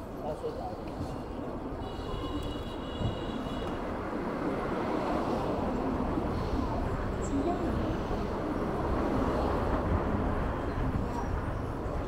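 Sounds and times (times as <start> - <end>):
road traffic: 0.0 - 12.0.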